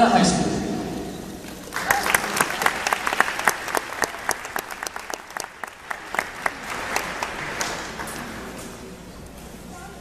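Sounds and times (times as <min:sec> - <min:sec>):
audience clapping: 0:01.5 - 0:08.9.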